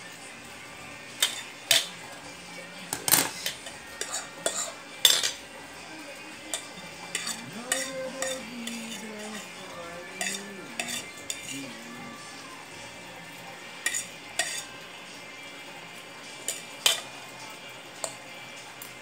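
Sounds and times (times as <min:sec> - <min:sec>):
fork clinking and scraping bowl: 0:01.2 - 0:02.0, 0:03.0 - 0:05.4, 0:06.5 - 0:11.8, 0:13.8 - 0:14.8, 0:16.4 - 0:17.2, 0:18.0 - 0:18.2.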